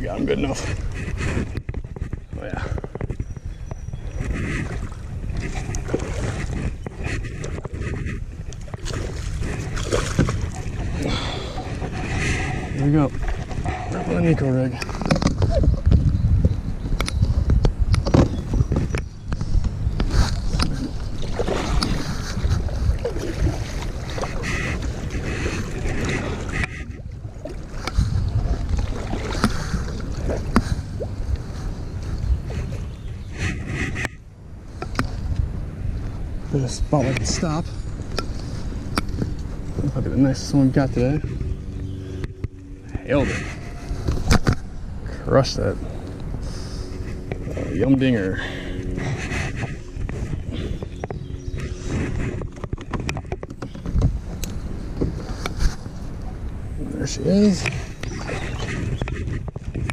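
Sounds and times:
water around a kayak: 0.0 - 59.9
wind: 0.0 - 59.9
paddle strokes splashing: 4.0 - 14.0, 19.6 - 35.4, 45.8 - 59.9.

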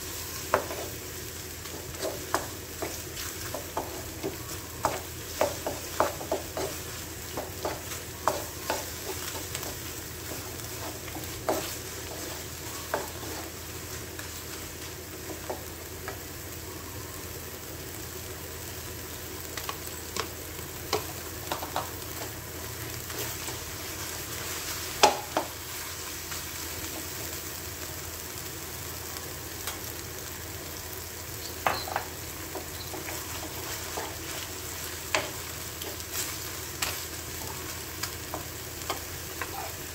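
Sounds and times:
food sizzling in a pan: 0.0 - 39.9
wooden spatula scraping a wok: 1.6 - 13.6.

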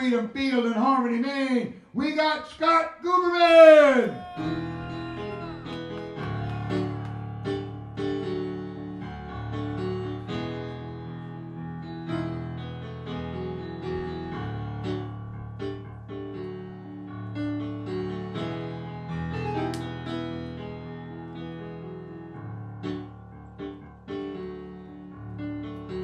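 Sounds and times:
electric keyboard piano chords: 4.3 - 26.0.

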